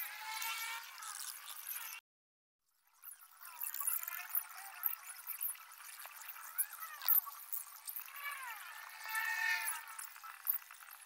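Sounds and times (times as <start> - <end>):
chorus of frogs calling: 2.9 - 11.0.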